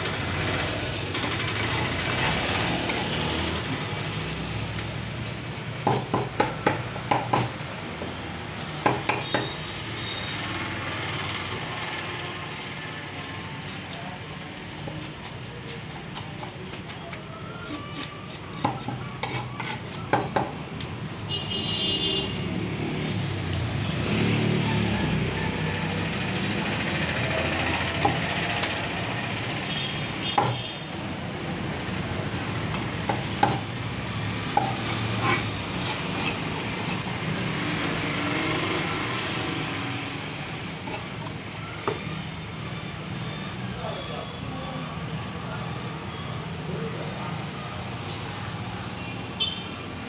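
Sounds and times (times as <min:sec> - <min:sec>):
knife chopping on wooden block: 0:05.8 - 0:10.1, 0:17.6 - 0:20.6, 0:30.3 - 0:30.6, 0:33.1 - 0:33.6, 0:34.5 - 0:38.3
knife scraping fish scales: 0:13.6 - 0:20.1, 0:34.7 - 0:38.5, 0:40.8 - 0:41.6.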